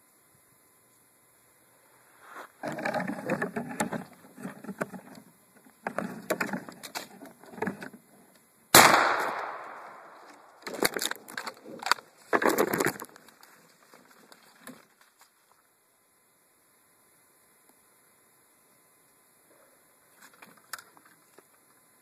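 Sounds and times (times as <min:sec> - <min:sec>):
shotgun blast with echo: 0:08.8 - 0:10.1.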